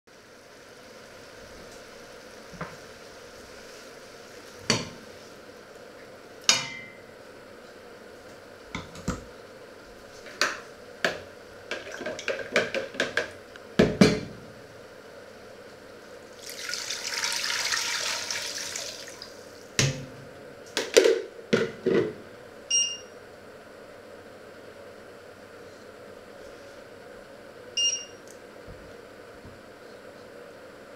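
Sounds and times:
water pouring into pot: 0:16.3 - 0:19.4
hob touch control beeps: 0:22.7 - 0:23.1, 0:27.8 - 0:28.2.

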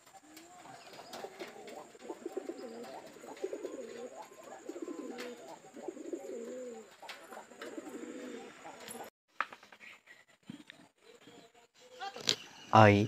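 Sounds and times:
pigeons cooing: 0:00.0 - 0:09.1.

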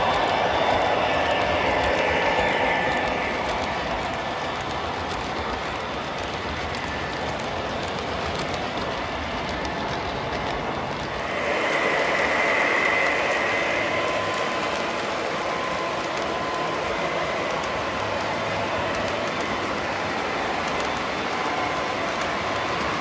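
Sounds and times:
model train wheels rumbling: 0:00.0 - 0:23.0
faint high whine: 0:11.1 - 0:23.0.

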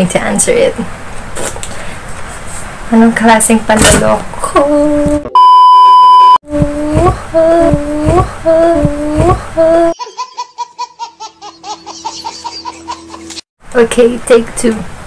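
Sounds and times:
steady high beep: 0:05.4 - 0:06.4
woman making drawn-out sounds: 0:06.4 - 0:10.0
baby giggling: 0:09.9 - 0:13.4.

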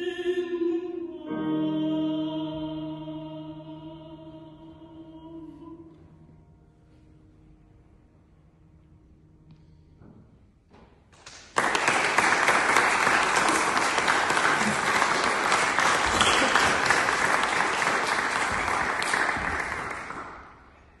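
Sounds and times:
audience clapping: 0:11.1 - 0:20.8.

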